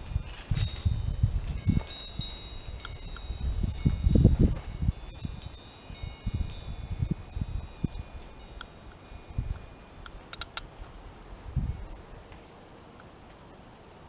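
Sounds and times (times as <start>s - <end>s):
wind chimes ringing: 0.0s - 10.3s
wind rumbling on microphone: 0.0s - 14.0s.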